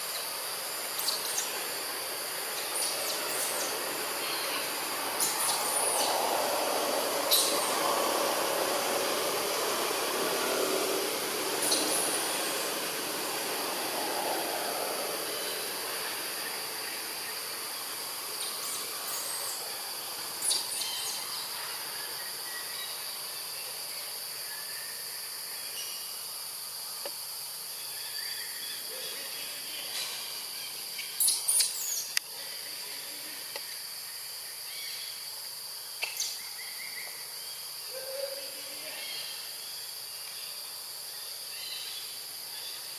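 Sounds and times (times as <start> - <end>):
insects droning: 0.0 - 42.9.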